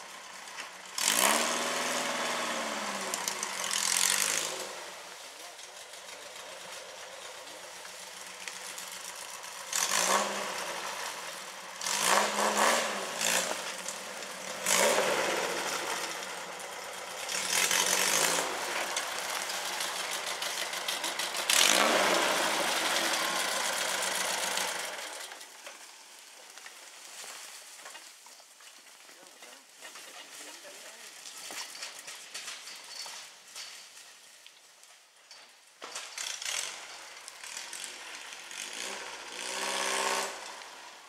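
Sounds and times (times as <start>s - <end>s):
buggy engine revving under load: 0.0s - 25.8s, 36.0s - 41.0s.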